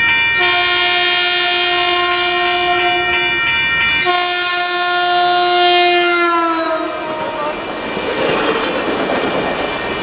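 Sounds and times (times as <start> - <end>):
crossing warning bell ringing: 0.0 - 7.7
train horn blasts: 0.3 - 3.4, 4.0 - 7.6.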